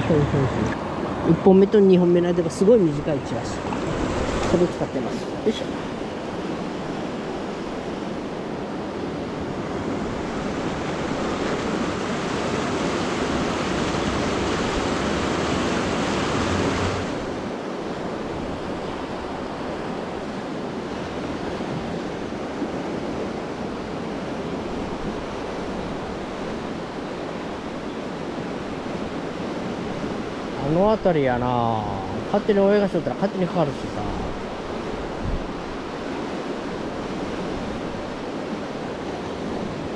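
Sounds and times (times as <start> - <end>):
river water rushing: 0.0 - 39.9
wind on microphone: 33.9 - 39.9.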